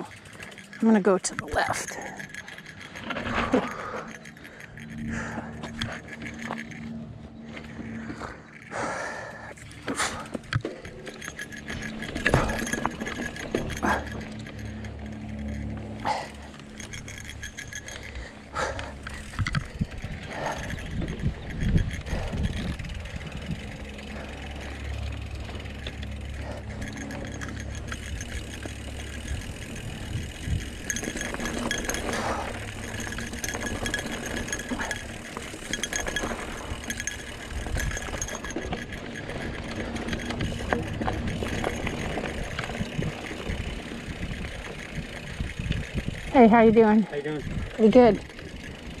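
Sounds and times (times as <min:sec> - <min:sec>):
bike chain rattling: 0:00.0 - 0:49.0
tyres crunching on gravel: 0:20.6 - 0:45.4.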